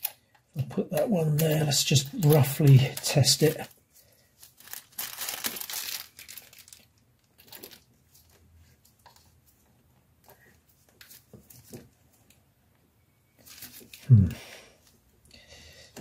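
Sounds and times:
plastic wrapping crinkling: 1.0 - 9.3, 13.4 - 14.2.

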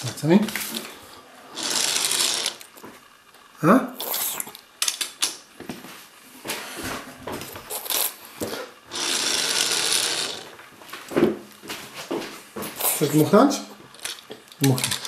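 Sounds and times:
plastic toy pieces clicking: 14.0 - 15.0.

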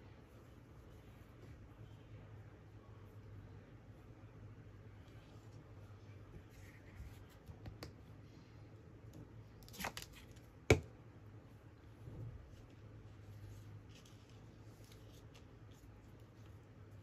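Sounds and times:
handling card and cloth: 12.4 - 17.0.

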